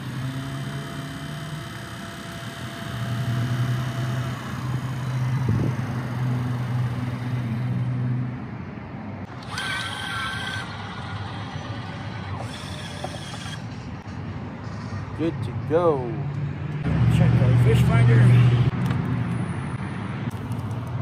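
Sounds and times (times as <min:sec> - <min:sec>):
electric motor humming: 0:00.0 - 0:08.4, 0:09.3 - 0:13.8.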